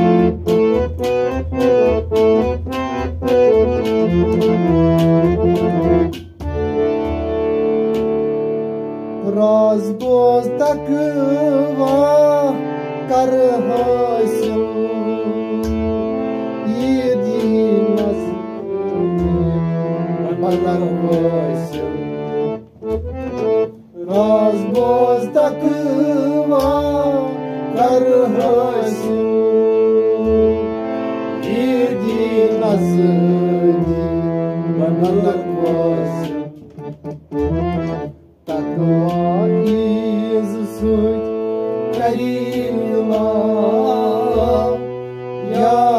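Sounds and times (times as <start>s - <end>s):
harmonium melody: 0.0s - 45.9s
man singing: 9.2s - 15.8s, 16.6s - 22.3s, 24.0s - 36.9s, 38.5s - 45.9s.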